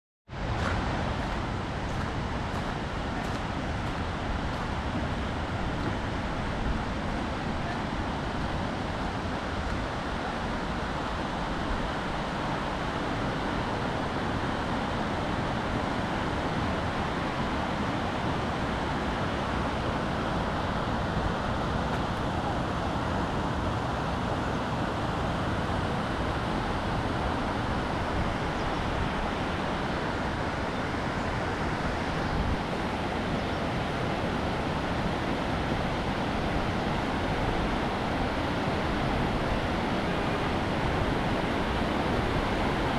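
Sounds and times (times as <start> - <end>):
river rushing over rocks: 0.3 - 42.9
wind buffeting microphone: 0.3 - 42.9.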